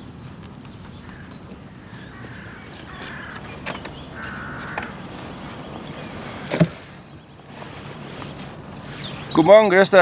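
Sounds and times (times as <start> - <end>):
outdoor background noise: 0.0 - 10.0
wavering animal calls: 1.0 - 6.5.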